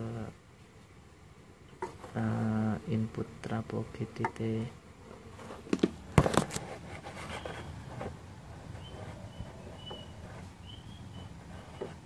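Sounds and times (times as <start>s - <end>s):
faint background noise: 0.0s - 12.0s
phone handling knocks and rubs: 5.5s - 8.2s
thin high chirp: 8.8s - 11.8s.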